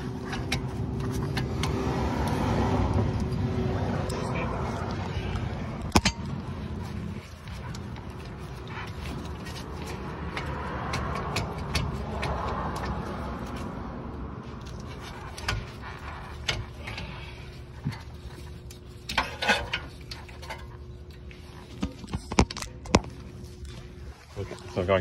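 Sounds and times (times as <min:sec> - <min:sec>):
brake caliper scraping: 0:00.0 - 0:13.8
sharp metal clicks and knocks: 0:05.8 - 0:06.5, 0:07.7 - 0:13.6.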